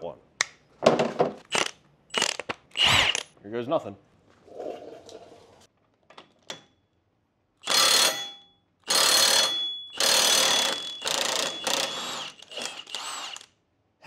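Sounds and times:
impact wrench hammering: 7.6 - 13.5
high metallic ring: 7.8 - 11.9.

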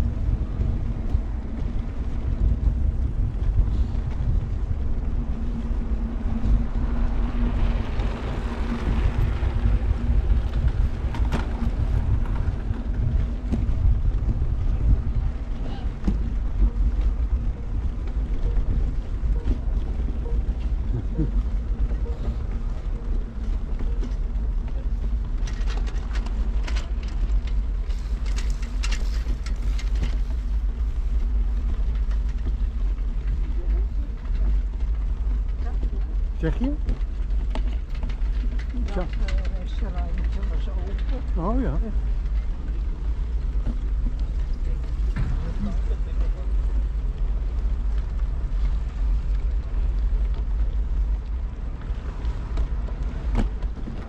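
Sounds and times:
low hum: 0.0 - 54.0
wheels rolling over brick paving: 0.0 - 54.0
wind on microphone: 0.0 - 54.0
light clicks and rattles: 21.9 - 54.0.

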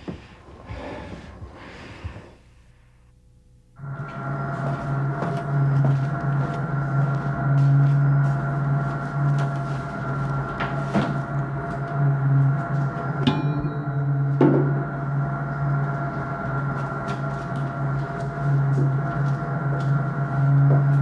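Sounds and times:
steady higher hum: 0.4 - 21.0
low pulsing drone: 3.8 - 21.0
short ringing click: 13.3 - 14.8.

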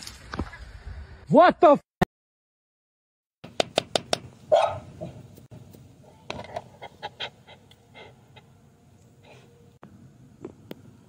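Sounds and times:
dog barking: 4.5 - 5.1.

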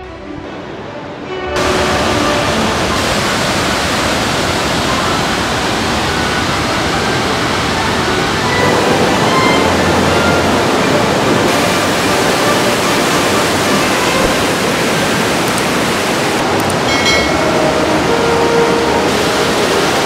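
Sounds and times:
water rushing over rocks: 1.6 - 20.0.

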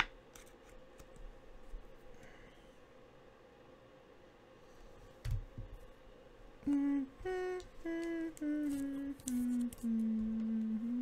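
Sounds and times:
person humming a tune: 6.6 - 11.0.

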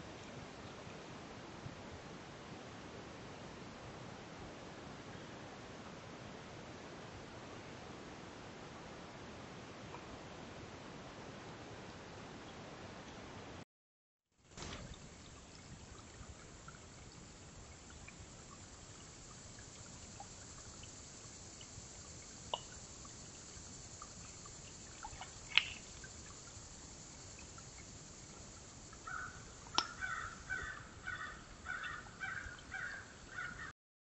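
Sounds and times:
steady hiss: 14.4 - 33.6
crow cawing: 29.0 - 33.7.

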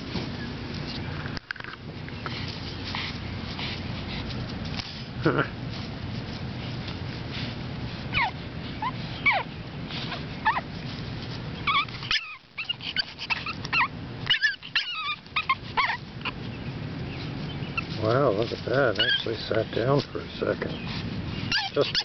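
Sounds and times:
puppies whining: 7.4 - 22.0.

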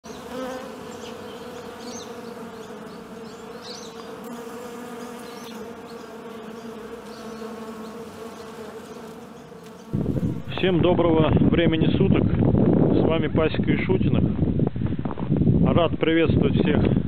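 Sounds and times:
honey bees buzzing: 0.0 - 10.7.

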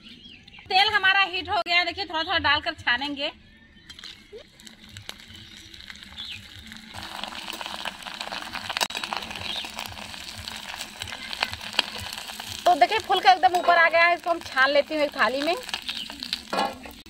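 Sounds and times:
food deep-frying in oil: 4.2 - 17.0.

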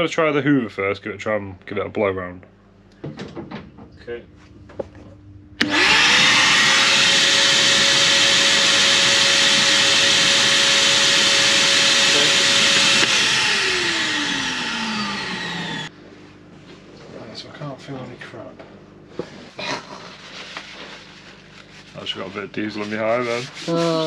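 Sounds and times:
vacuum cleaner motor whine: 5.6 - 15.9.

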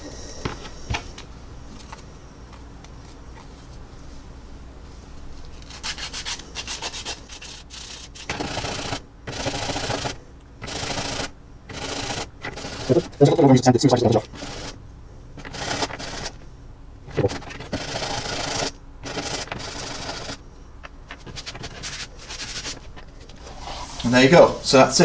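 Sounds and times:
sanding stick scraping resin: 5.6 - 8.4, 21.2 - 22.9.

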